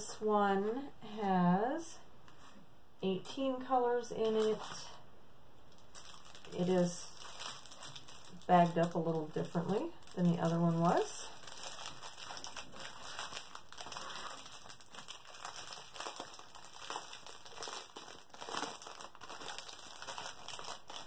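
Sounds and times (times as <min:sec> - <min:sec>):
plastic bag crinkling: 0:04.2 - 0:05.0, 0:05.7 - 0:21.0.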